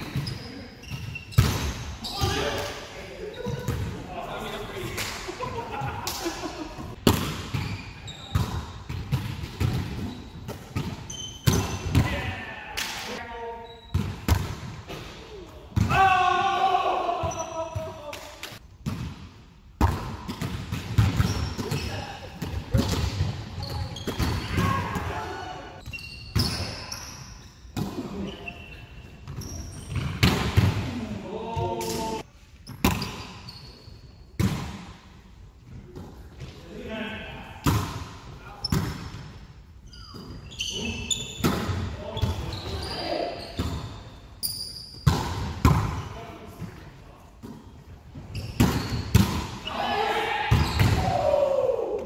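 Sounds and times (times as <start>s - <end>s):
shoe squeaks on gym floor: 0.0s - 2.6s, 7.6s - 8.4s, 10.0s - 11.8s, 13.6s - 14.0s, 23.6s - 24.6s, 25.8s - 30.2s, 32.6s - 34.2s, 39.8s - 45.1s, 47.6s - 49.8s
hands slapping volleyball: 6.0s - 6.4s.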